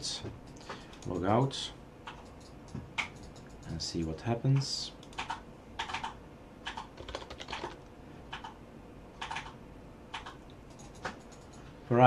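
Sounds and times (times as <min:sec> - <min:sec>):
keyboard typing: 0:02.0 - 0:03.8, 0:05.0 - 0:08.6, 0:09.2 - 0:11.6.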